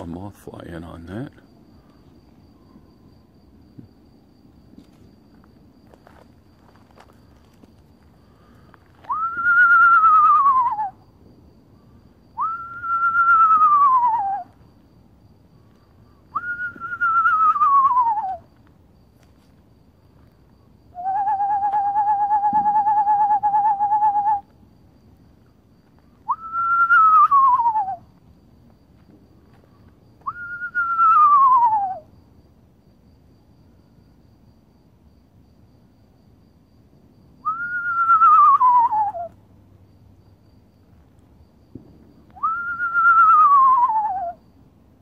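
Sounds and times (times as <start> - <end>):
person whistling owl calls: 8.9 - 11.0, 12.4 - 14.6, 16.3 - 18.5, 20.9 - 24.5, 26.2 - 28.1, 30.2 - 32.1, 37.4 - 39.4, 42.4 - 44.4.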